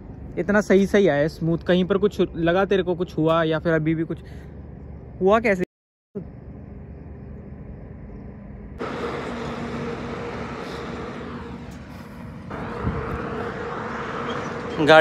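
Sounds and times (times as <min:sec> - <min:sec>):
road noise: 0:00.0 - 0:05.6, 0:06.4 - 0:15.0
vehicle engine humming: 0:06.2 - 0:15.0.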